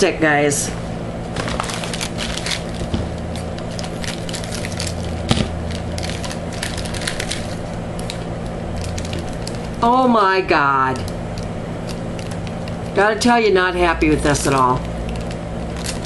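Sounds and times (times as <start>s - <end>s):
steady low hum: 0.0s - 16.0s
packaging crinkling: 1.3s - 9.8s, 10.9s - 13.0s, 14.5s - 16.0s.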